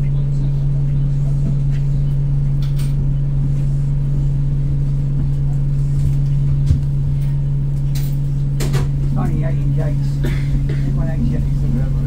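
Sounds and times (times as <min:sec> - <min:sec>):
bus engine idling: 0:00.0 - 0:12.0.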